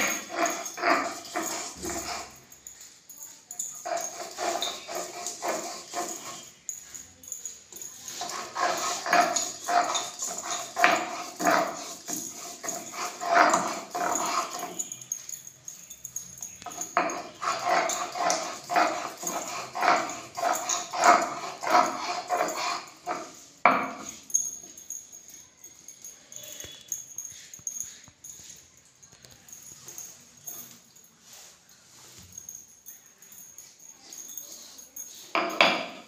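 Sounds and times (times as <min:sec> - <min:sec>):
stone roller grinding on stone: 0:00.0 - 0:02.5, 0:03.7 - 0:06.7, 0:07.9 - 0:15.2, 0:16.4 - 0:24.4, 0:35.3 - 0:36.0.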